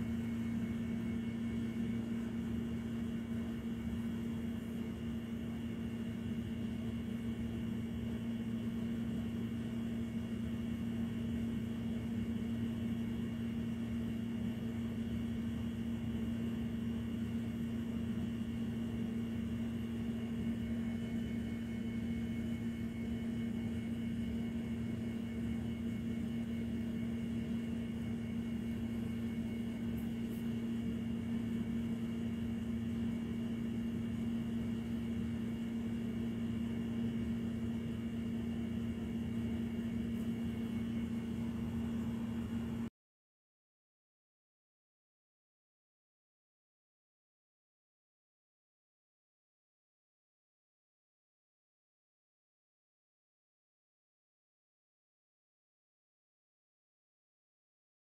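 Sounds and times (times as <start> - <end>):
low machine hum: 0.0 - 42.9.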